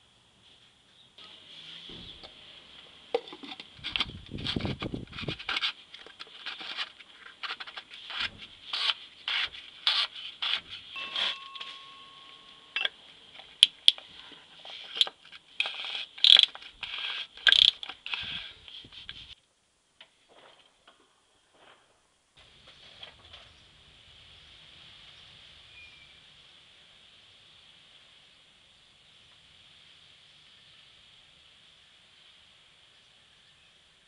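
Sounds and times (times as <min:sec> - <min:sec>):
scraping and rubbing strokes: 0:00.4 - 0:02.6, 0:03.3 - 0:12.8, 0:14.0 - 0:19.4.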